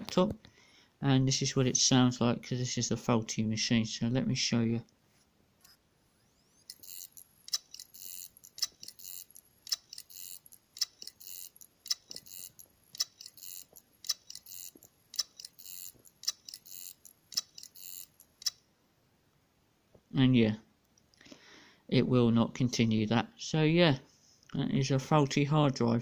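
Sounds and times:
short scratchy buzz: 5.6 - 18.6
faint rising whine: 5.7 - 7.4
hard drive clicking: 6.6 - 18.6.

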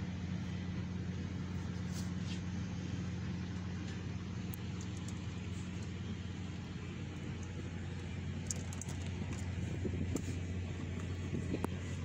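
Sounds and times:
low mechanical hum: 0.0 - 12.0
faint clicks from parts handled: 3.5 - 6.0, 8.4 - 9.5.

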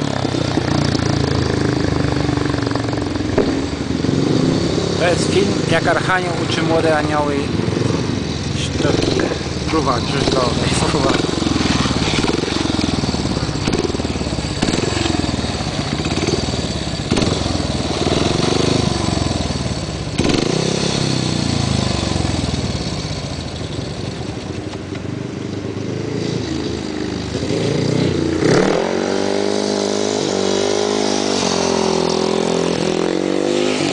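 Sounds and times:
nearby motorcycle engine steady note: 0.0 - 28.4
motorcycle engines revving: 0.0 - 33.9.

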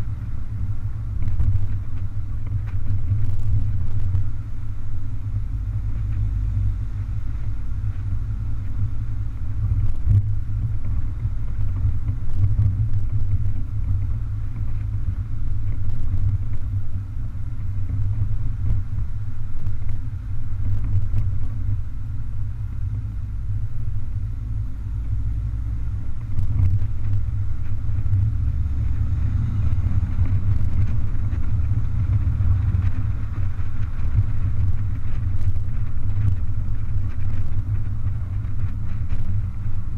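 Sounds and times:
car engine rumble: 0.0 - 39.9
road noise: 0.0 - 39.9
wind noise: 0.0 - 39.9.

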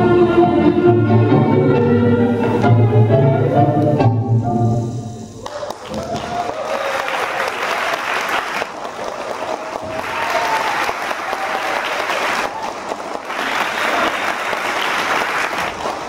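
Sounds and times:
audience applauding: 5.4 - 16.0.

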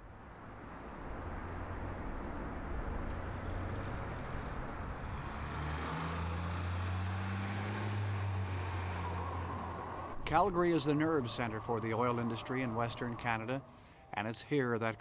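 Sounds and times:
bus driving by: 0.0 - 14.1
low engine drone: 7.9 - 14.2.

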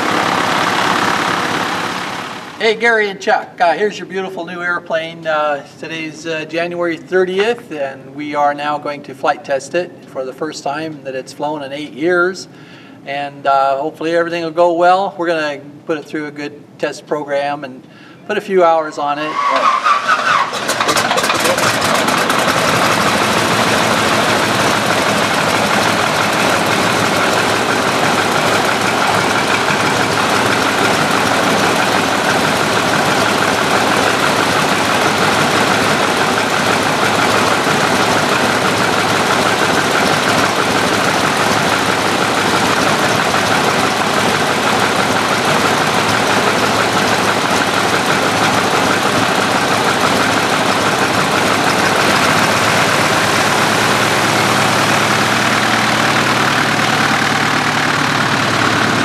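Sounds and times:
biplane engine and propeller running: 0.0 - 2.6, 20.6 - 59.0.

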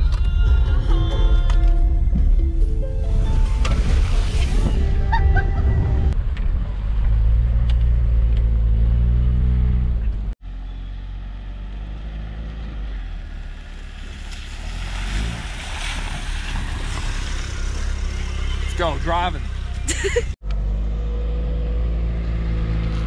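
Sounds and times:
tyres splashing through puddle: 10.5 - 20.4.

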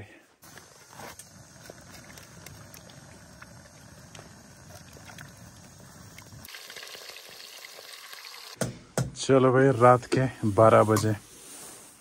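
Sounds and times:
gas burner hissing and rumbling: 0.4 - 6.5.

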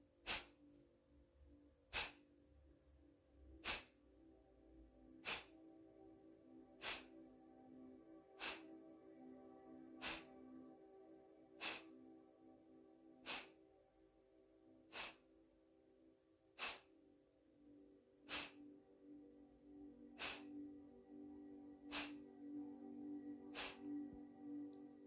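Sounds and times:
soft background music: 0.0 - 25.0
forceful nasal exhales: 0.2 - 0.5, 1.9 - 2.2, 3.6 - 3.9, 5.2 - 5.5, 6.8 - 7.1, 8.4 - 8.7, 10.0 - 10.3, 11.6 - 11.9, 13.2 - 13.6, 14.9 - 15.2, 16.6 - 16.9, 18.3 - 18.6, 20.2 - 20.5, 21.9 - 22.2, 23.5 - 23.8.

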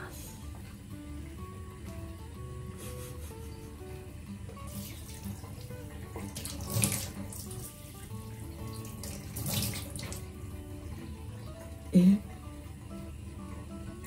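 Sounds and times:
water splashing at a sink: 4.6 - 11.8.

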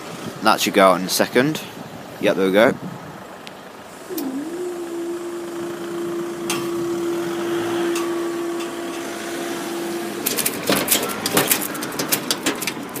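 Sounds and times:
barrier mechanism humming: 3.9 - 13.0
sharp clicks and knocks: 10.2 - 13.0.

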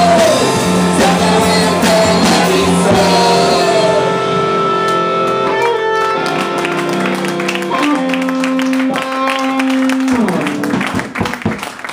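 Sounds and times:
drum and cymbal hits: 0.0 - 4.1
electric guitars and bass ringing: 0.0 - 11.2.

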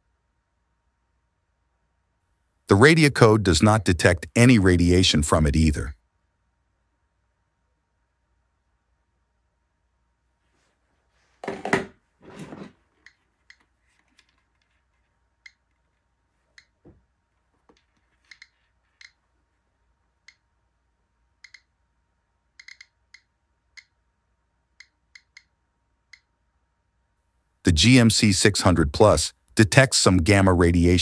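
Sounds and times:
geiger counter clicking: 15.4 - 15.9, 16.5 - 16.8, 17.7 - 19.2, 21.4 - 21.7, 22.6 - 24.0, 24.7 - 26.3.

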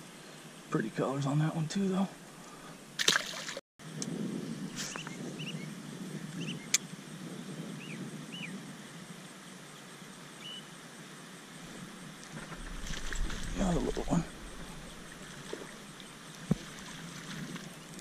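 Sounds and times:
low outdoor rumble: 11.6 - 18.0.

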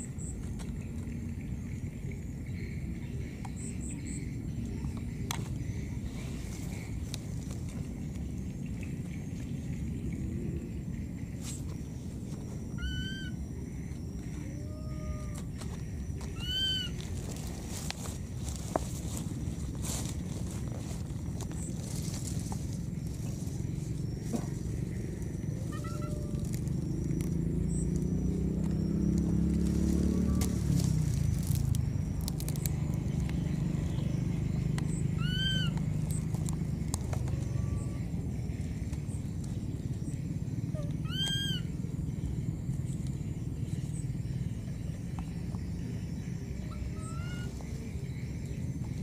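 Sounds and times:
baby monkey high-pitched calls: 12.7 - 13.4, 14.3 - 15.6, 16.3 - 17.0, 24.2 - 27.0, 34.9 - 36.2, 37.2 - 38.3, 40.7 - 41.9, 46.5 - 47.9.

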